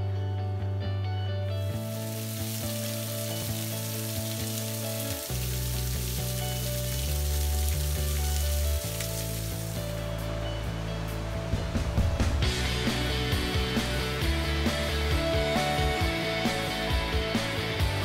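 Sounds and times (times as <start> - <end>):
background music with bass: 0.0 - 18.0
water spattering onto rocks: 1.8 - 10.0.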